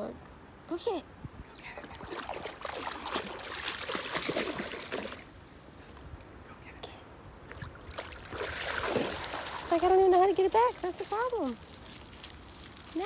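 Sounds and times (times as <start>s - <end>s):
dog splashing through water: 1.9s - 5.3s, 7.6s - 13.0s.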